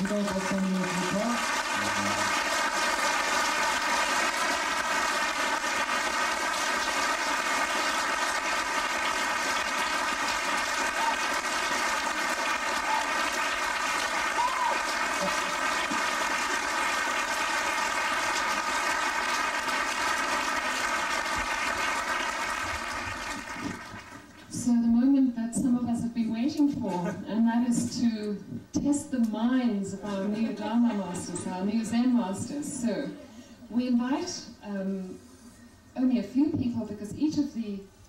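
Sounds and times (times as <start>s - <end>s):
audience applauding: 0.0s - 24.4s.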